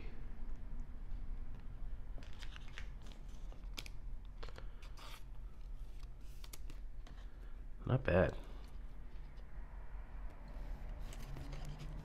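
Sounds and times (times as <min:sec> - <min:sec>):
plastic card sleeve crinkling: 0:02.2 - 0:07.5.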